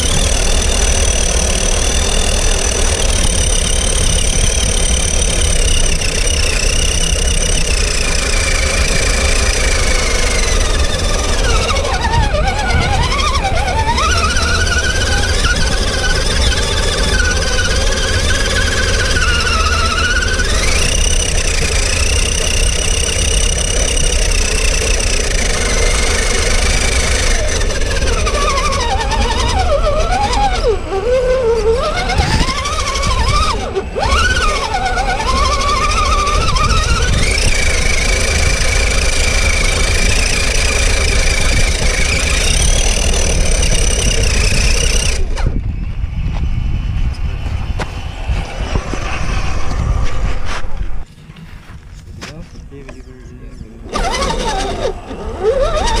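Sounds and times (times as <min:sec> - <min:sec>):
electric motor and gearbox whine: 0:00.0 - 0:56.0
steady low rumble: 0:36.4 - 0:53.9.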